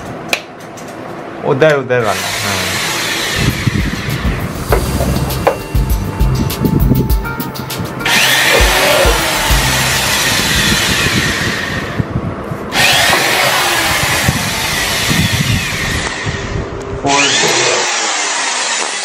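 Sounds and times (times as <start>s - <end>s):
electric drill whine: 2.0s - 5.6s, 8.0s - 12.1s, 12.7s - 19.0s.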